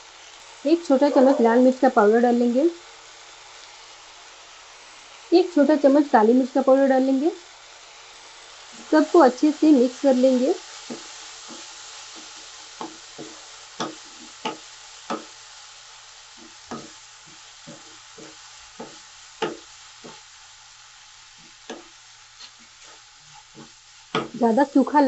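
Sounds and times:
food sizzling in oil: 0.0s - 25.0s
spatula scraping a pan: 10.6s - 15.5s, 16.2s - 24.6s.

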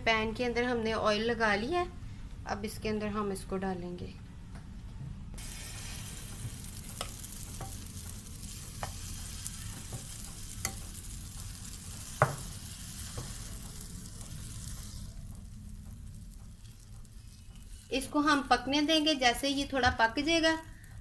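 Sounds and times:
batter sizzling in oil: 5.4s - 21.0s
metal spoon tapping and scraping pan: 6.4s - 13.9s.

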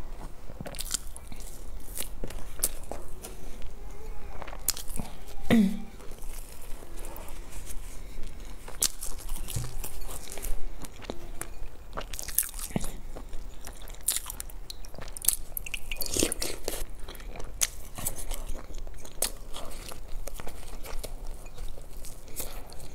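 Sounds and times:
crunching bread crust: 0.0s - 5.4s.

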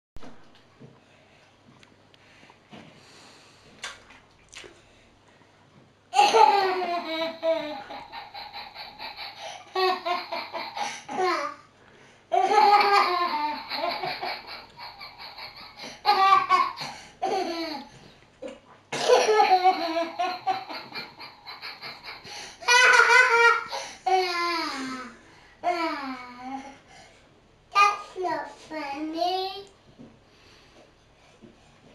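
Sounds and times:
toddler belly-laughing: 6.2s - 11.5s, 12.3s - 17.9s, 19.1s - 24.9s.

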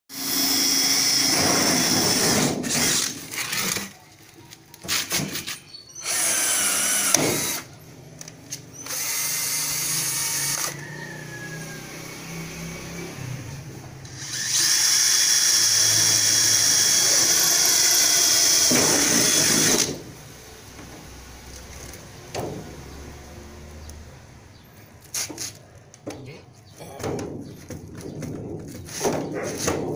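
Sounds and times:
cordless drill boring through sheet steel: 0.1s - 3.9s, 6.0s - 7.7s, 8.8s - 10.8s, 14.1s - 20.0s
knocking and handling of metal: 25.3s - 29.9s.

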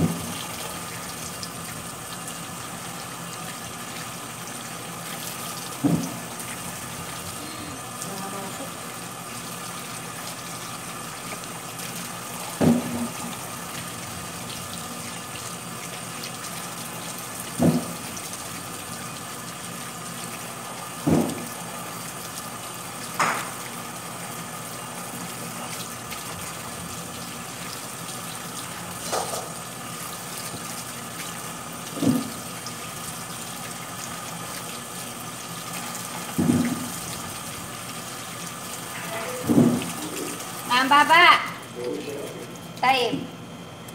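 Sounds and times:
tap water running into sink: 0.0s - 41.8s.

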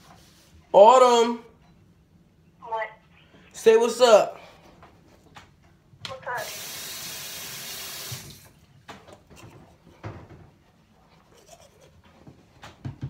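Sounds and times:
sink tap running: 6.4s - 8.5s
toothbrush scrubbing teeth: 11.2s - 12.1s.

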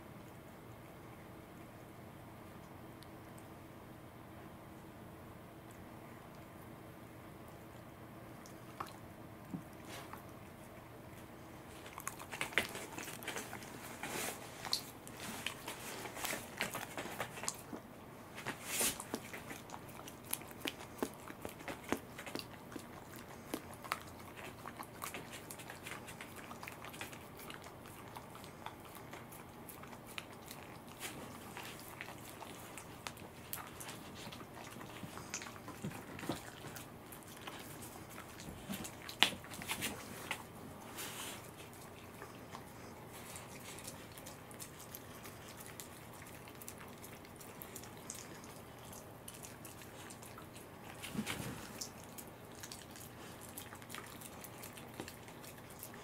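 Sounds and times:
animals chewing and biting: 5.6s - 56.0s
small clicks and smacks: 11.2s - 40.6s.

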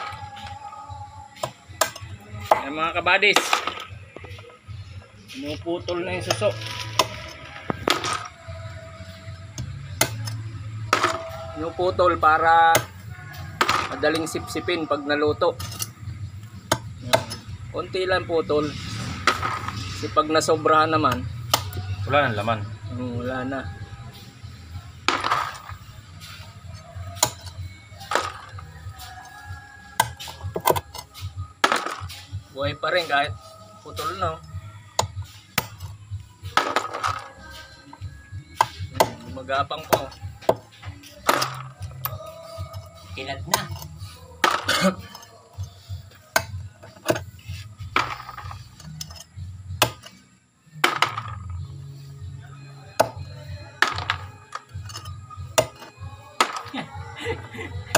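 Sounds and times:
shells being handled: 36.5s - 37.7s.

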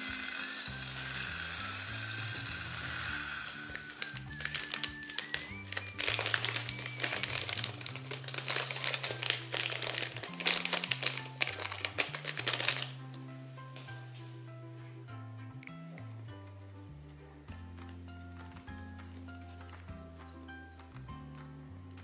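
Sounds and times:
background music: 0.0s - 22.0s
crunchy slime crackling: 3.6s - 13.0s.

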